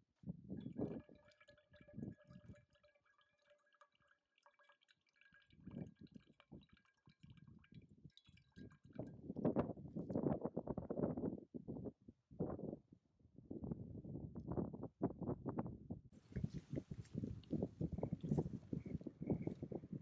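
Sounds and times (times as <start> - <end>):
water trickling into metal cup: 0.4 - 10.3, 16.2 - 20.0.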